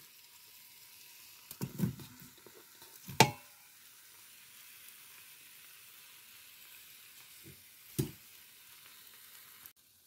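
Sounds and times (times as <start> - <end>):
faint steady hiss: 0.0 - 10.0
food thumping into a pot: 1.5 - 2.4, 3.0 - 3.6, 7.4 - 8.2.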